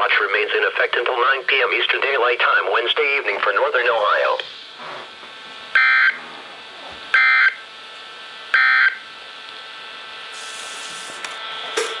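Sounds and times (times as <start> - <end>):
radio hiss: 0.0 - 5.0, 10.3 - 12.0.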